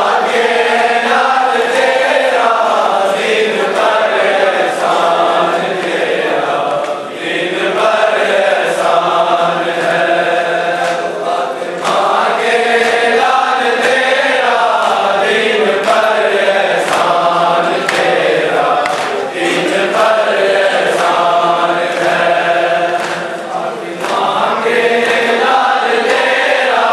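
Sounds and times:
crowd of men chanting: 0.0s - 26.9s
hands slapping chests: 5.7s - 7.0s, 10.8s - 26.4s.

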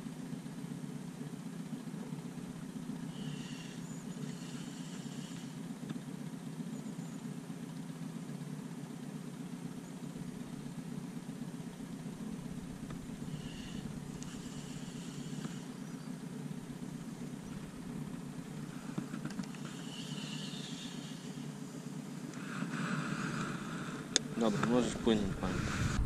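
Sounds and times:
boat motor humming: 0.0s - 26.0s
high whirring: 11.6s - 26.0s.

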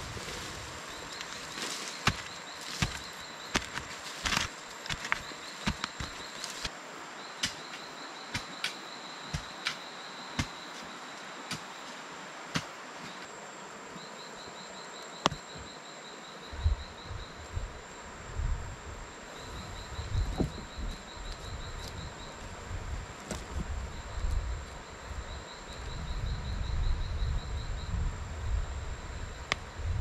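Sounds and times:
hand digging in soil: 0.0s - 6.7s
insect chirps: 0.0s - 30.0s
insects whining: 0.0s - 30.0s.

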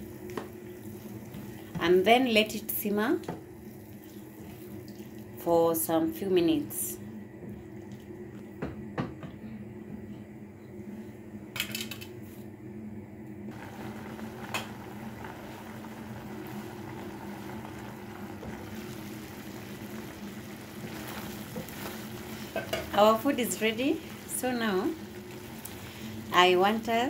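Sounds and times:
stew bubbling in a pan: 0.0s - 5.4s, 13.5s - 26.9s.

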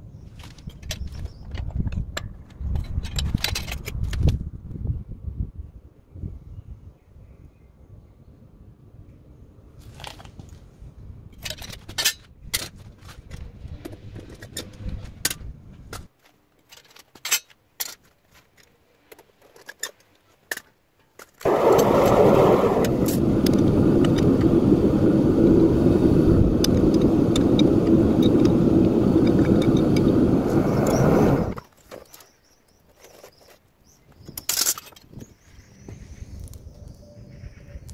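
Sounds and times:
burner roaring: 21.4s - 31.6s
low rumble: 21.4s - 31.6s.

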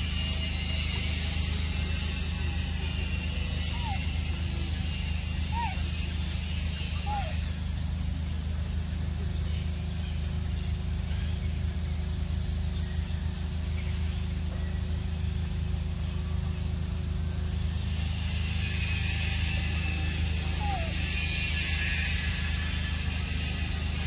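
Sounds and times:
high-pitched whines: 0.0s - 10.2s
steady low hum: 0.0s - 24.0s.

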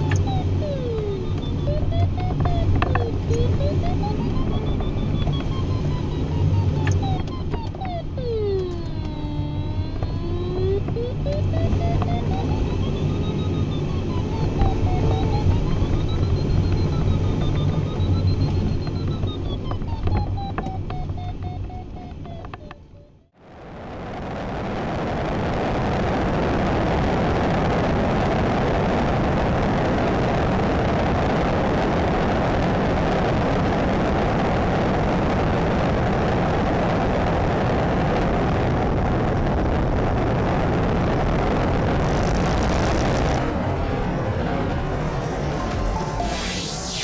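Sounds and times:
rushing airflow and plane engine: 0.0s - 20.9s, 23.4s - 47.0s
sound sliding down in pitch: 0.0s - 21.6s, 23.5s - 47.0s.

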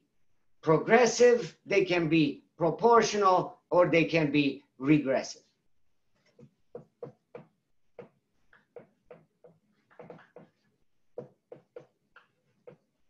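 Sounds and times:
marker writing on whiteboard: 6.1s - 13.0s.

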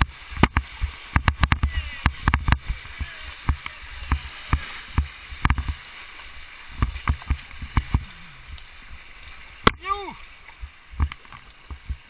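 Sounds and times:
rushing water: 0.0s - 12.0s
waves splashing against kayak: 0.0s - 12.0s.

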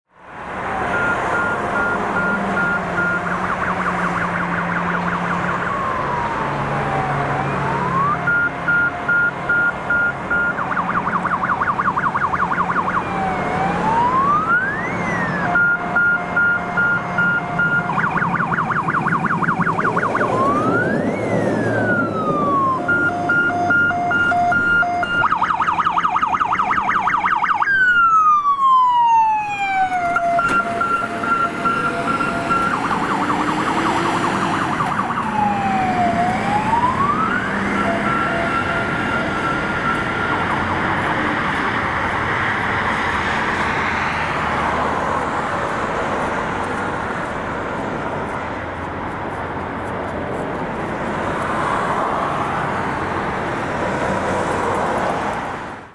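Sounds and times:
fire engine siren: 0.1s - 48.6s
diesel engine running: 29.5s - 51.0s.

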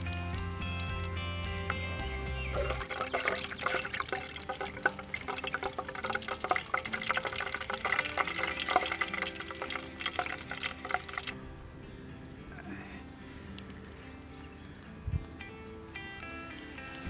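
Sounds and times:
hot oil crackling in frying pan: 0.0s - 11.4s.

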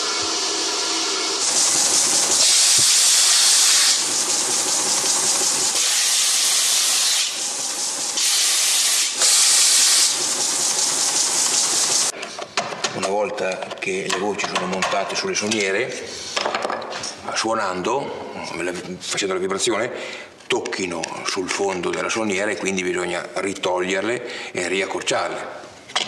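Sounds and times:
wood sanding hiss: 0.0s - 12.1s
belt sander humming: 0.2s - 12.1s.

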